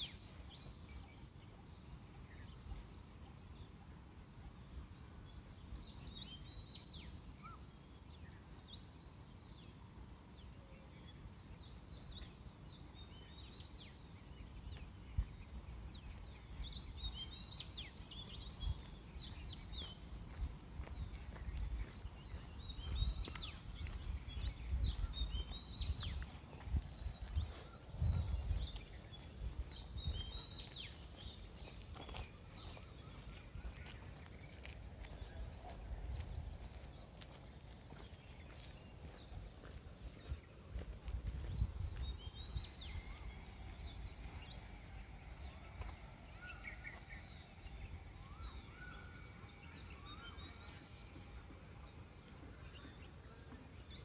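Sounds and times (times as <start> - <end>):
small birds chirping: 0.0 - 54.0
low uneven rumble: 20.1 - 53.6.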